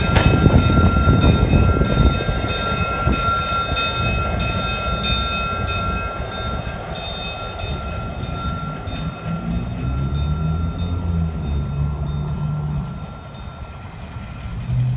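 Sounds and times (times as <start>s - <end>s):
locomotive engines rumbling: 0.0s - 14.9s
wheel and rail noise: 0.0s - 14.9s.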